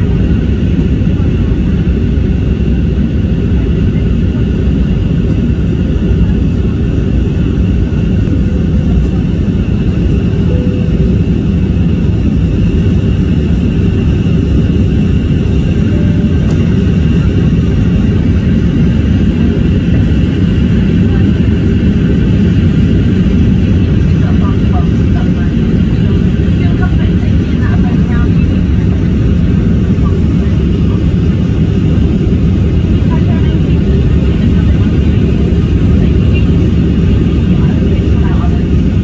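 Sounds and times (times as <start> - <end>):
jet engine and airflow roar: 0.0 - 39.0
faint high whine: 8.2 - 13.8.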